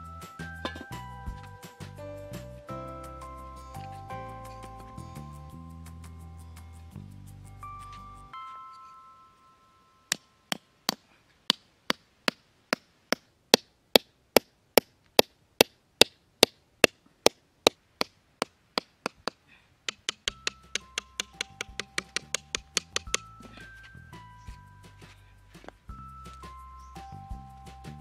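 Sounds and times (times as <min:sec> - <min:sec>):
background music: 0:00.0 - 0:10.4, 0:20.2 - 0:28.0
hatchet knocking wooden stake: 0:10.1 - 0:23.4.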